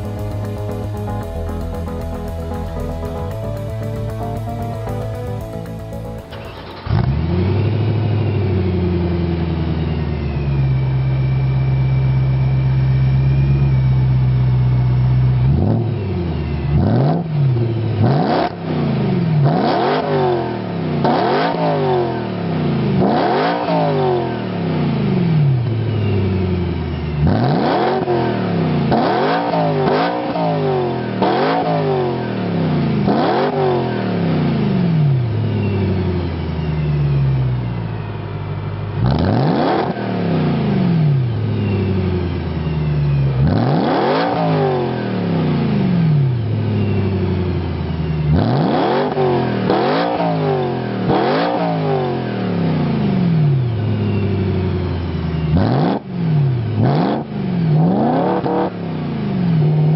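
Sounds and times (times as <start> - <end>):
car engine revving: 0.0 - 9.0, 18.0 - 22.2, 23.0 - 25.2, 27.2 - 35.1, 38.3 - 41.6, 43.3 - 46.3, 47.6 - 53.8, 55.4 - 58.8.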